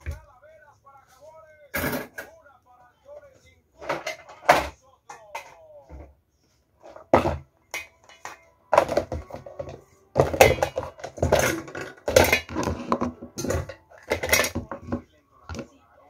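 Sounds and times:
dishes and plastic containers clattering: 1.7s - 2.4s, 3.8s - 6.2s, 6.8s - 15.8s.

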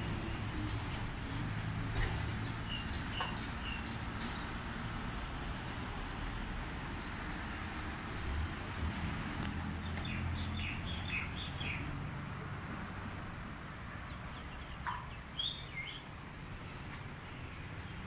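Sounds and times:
small birds chirping: 2.3s - 4.1s, 9.3s - 11.9s, 14.1s - 16.1s.

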